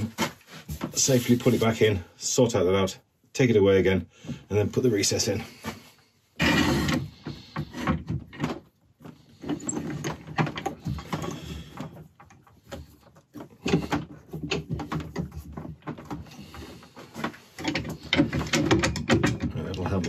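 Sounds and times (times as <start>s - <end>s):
knocks and clicks: 17.2s - 20.0s.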